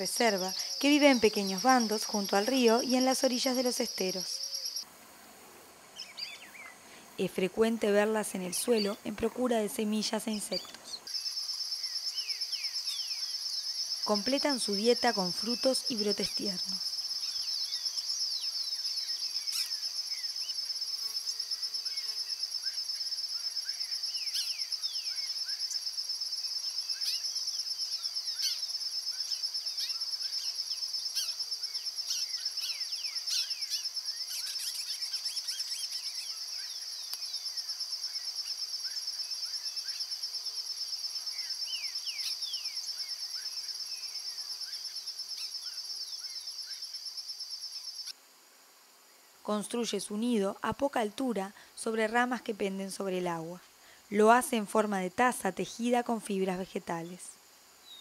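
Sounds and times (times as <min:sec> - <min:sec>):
high-pitched insect trill: 0:00.0 - 0:04.9, 0:08.4 - 0:48.2.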